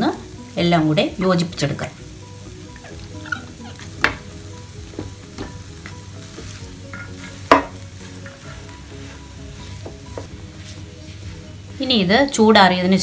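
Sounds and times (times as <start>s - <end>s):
low sizzle from pan: 0.0s - 13.0s
wooden spatula scraping pan: 6.2s - 11.5s
spatula knocking against pan: 6.9s - 7.8s.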